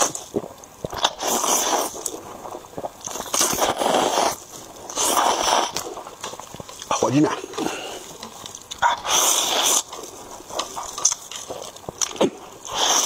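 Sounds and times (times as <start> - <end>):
person slurping noodles: 0.0 - 6.0, 8.8 - 10.8, 12.2 - 13.0.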